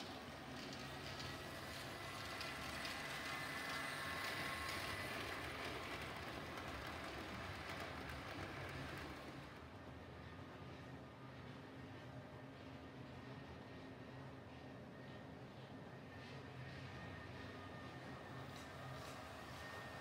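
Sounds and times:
model train motor whine: 0.0 - 9.6
wheels clattering on rails: 0.0 - 9.6.

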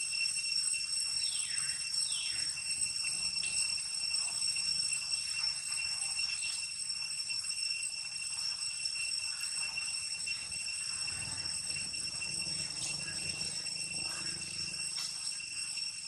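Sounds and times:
high-pitched insect drone: 0.0 - 16.0.

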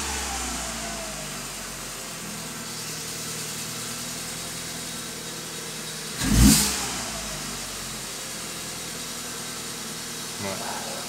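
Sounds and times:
car engine idling and revving: 0.0 - 11.0.

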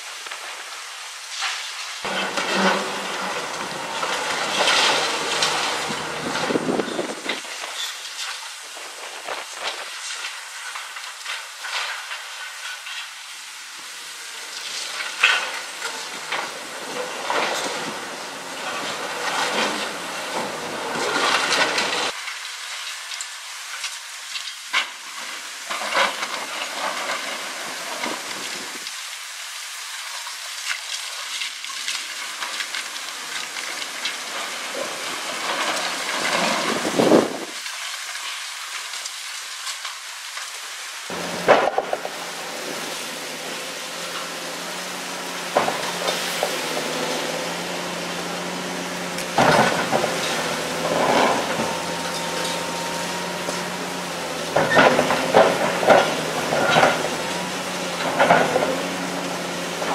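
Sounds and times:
concrete wall crunching and cracking: 2.0 - 8.4
low engine hum: 2.1 - 7.4, 41.1 - 59.9.

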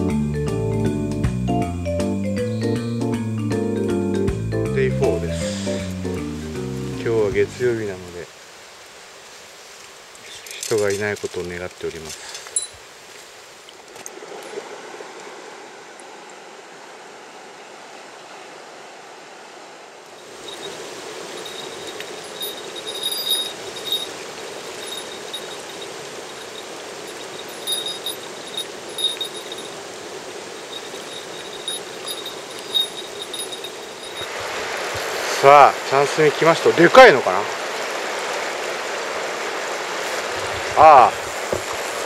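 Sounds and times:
river rushing over stones: 19.9 - 42.0
short high clinking notes: 20.4 - 29.8, 30.6 - 34.4.

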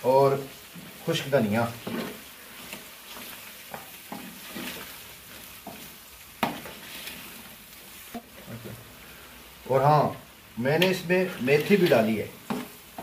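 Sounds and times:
food sizzling: 0.0 - 13.0.

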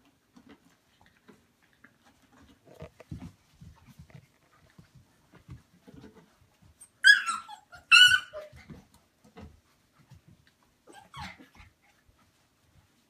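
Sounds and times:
puppies yelping: 6.8 - 8.8, 10.9 - 11.7.

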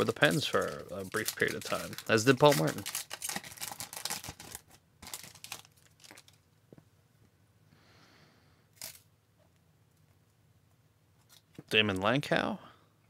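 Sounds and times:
foil wrapper crinkling and tearing: 0.0 - 6.4.

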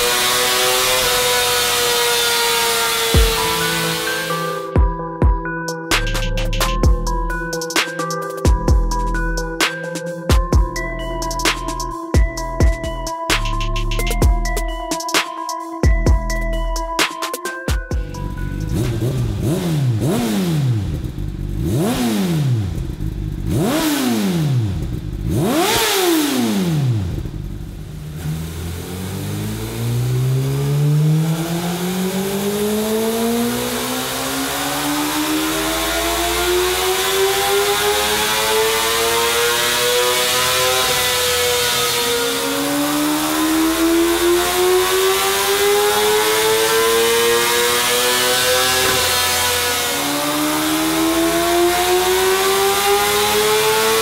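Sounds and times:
motorcycle engine revving: 0.0 - 4.8, 18.0 - 54.0.

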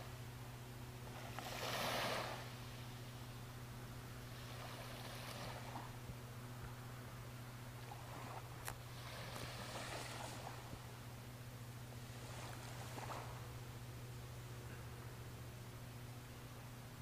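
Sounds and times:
steady low hum: 0.0 - 17.0
small waves washing among slush ice: 1.1 - 2.6, 4.4 - 5.9, 7.8 - 10.8, 12.0 - 13.4.

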